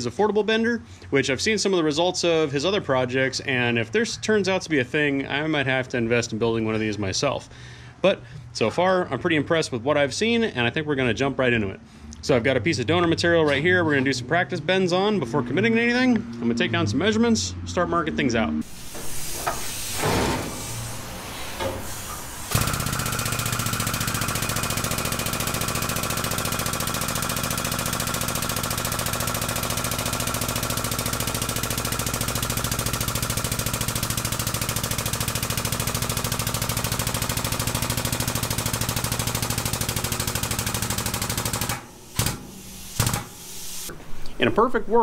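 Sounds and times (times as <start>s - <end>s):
hydraulic jack pumping: 18.6s - 43.9s.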